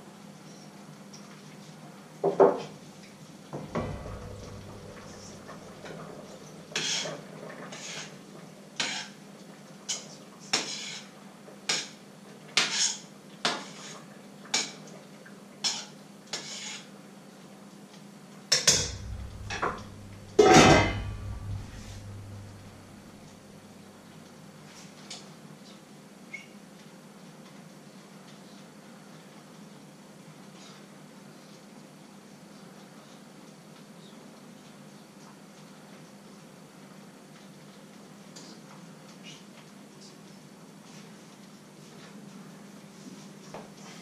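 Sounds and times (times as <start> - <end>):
metal utensil knocking in a pot: 3.6 - 7.1, 18.6 - 23.1
pot and lid clattering: 3.6 - 7.2, 18.6 - 23.1.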